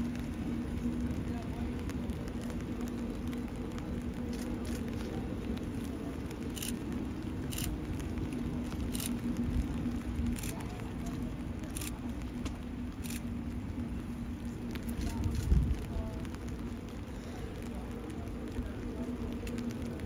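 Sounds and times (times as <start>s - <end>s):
train rumbling slowly past: 0.0s - 20.0s.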